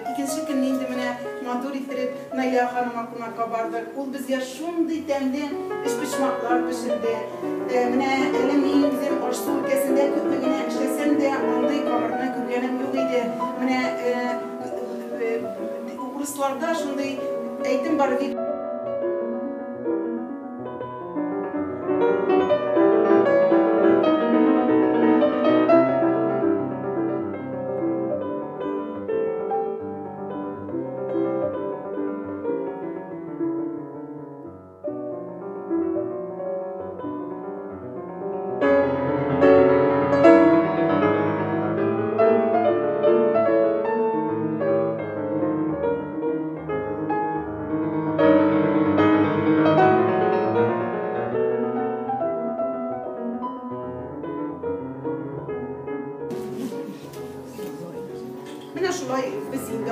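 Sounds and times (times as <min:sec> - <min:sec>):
piano music: 0:00.0 - 0:59.9.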